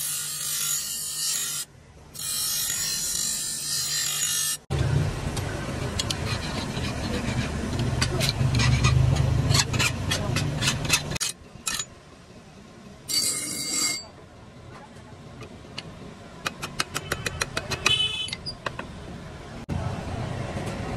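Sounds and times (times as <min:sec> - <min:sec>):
steel grinding on grinding wheel: 0:00.0 - 0:04.6, 0:06.0 - 0:11.9, 0:13.1 - 0:14.1
metallic ring: 0:13.1 - 0:14.1.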